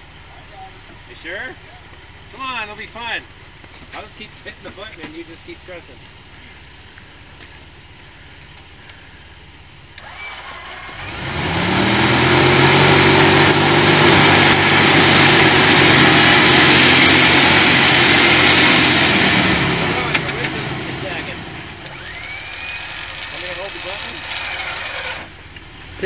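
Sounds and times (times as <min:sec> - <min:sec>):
engine revving under load: 0:10.0 - 0:26.0
tyres spinning in snow: 0:10.0 - 0:26.0.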